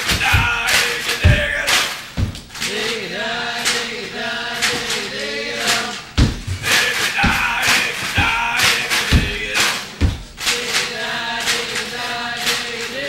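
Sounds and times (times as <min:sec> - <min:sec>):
heavy low thumps: 0:00.0 - 0:02.5, 0:06.1 - 0:10.4
sharp percussive hits: 0:00.0 - 0:02.8, 0:05.6 - 0:11.9
voices singing wavering melody: 0:00.0 - 0:13.0.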